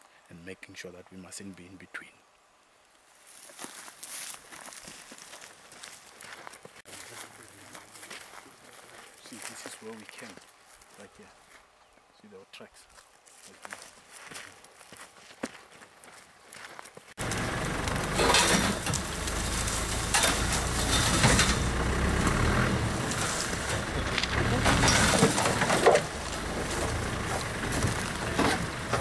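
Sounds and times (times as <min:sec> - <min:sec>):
vehicle engine running: 0:17.2 - 0:29.0
vehicle knocks and rattles: 0:17.2 - 0:29.0.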